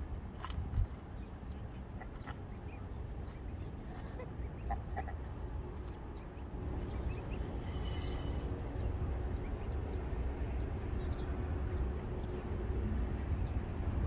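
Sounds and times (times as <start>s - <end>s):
low wind rumble on microphone: 0.0s - 14.0s
goslings peeping: 1.5s - 6.0s, 6.9s - 8.5s
brief high hiss: 7.4s - 8.5s.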